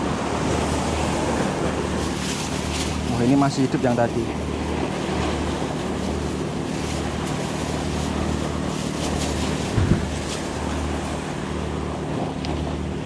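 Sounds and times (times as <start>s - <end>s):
surf washing on rocks: 0.0s - 13.0s
wind buffeting microphone: 9.3s - 11.2s.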